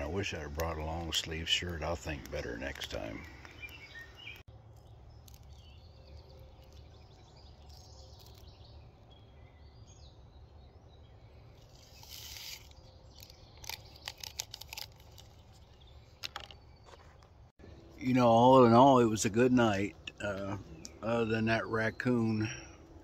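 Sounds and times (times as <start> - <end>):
faint birdsong: 0.0 - 23.0
foil packet crinkling: 11.8 - 16.5.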